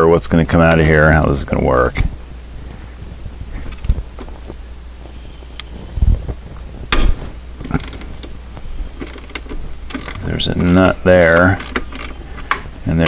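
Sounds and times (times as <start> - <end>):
steady low hum: 0.0 - 13.0
handling knocks and clicks: 3.6 - 4.6, 6.3 - 13.0.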